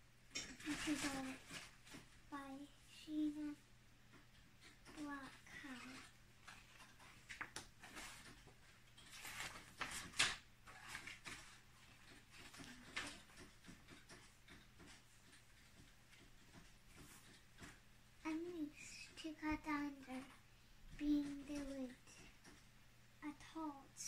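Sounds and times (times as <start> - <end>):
book pages turning and rustling: 0.6 - 2.2, 4.6 - 17.8.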